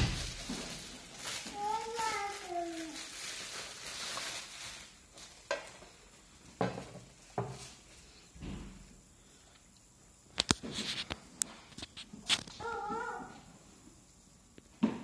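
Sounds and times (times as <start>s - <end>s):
bubble wrap crinkling: 0.0s - 8.2s.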